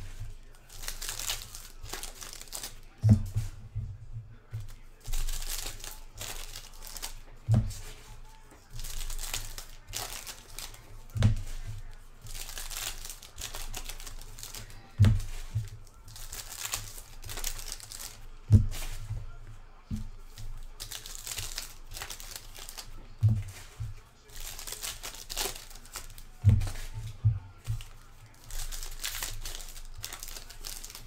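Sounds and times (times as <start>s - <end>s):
foil wrappers tearing and crinkling: 0.0s - 3.2s, 4.5s - 19.2s, 19.9s - 31.0s
dull thump: 3.0s - 4.7s, 23.2s - 24.0s.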